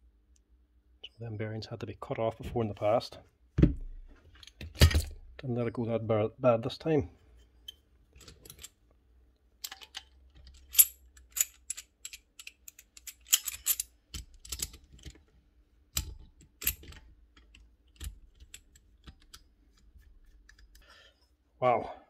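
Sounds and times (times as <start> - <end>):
metal parts clinking: 7.6 - 8.8, 9.6 - 15.2.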